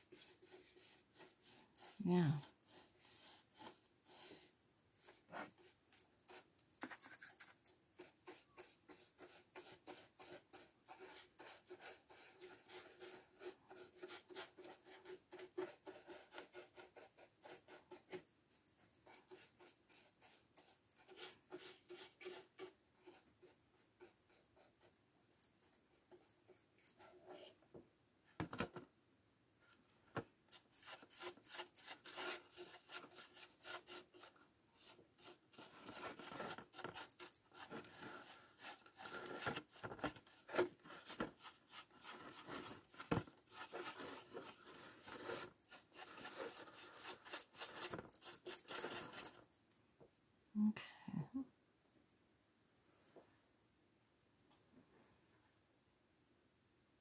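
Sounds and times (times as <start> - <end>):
paintbrush ticking and scratching: 0.0 - 27.4, 30.5 - 49.6.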